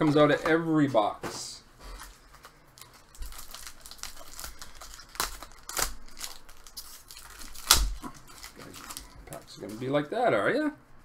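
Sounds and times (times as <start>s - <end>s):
foil wrapper crinkling: 2.0s - 9.9s
foil wrapper ripping: 2.8s - 9.7s.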